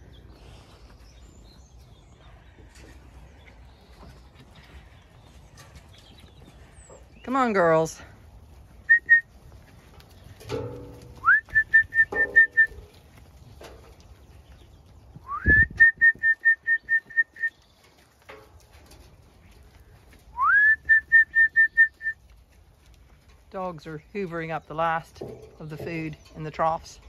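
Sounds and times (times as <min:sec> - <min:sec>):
person whistling to call sheep: 0:08.9 - 0:09.3, 0:11.2 - 0:12.8, 0:15.2 - 0:17.6, 0:20.4 - 0:22.2.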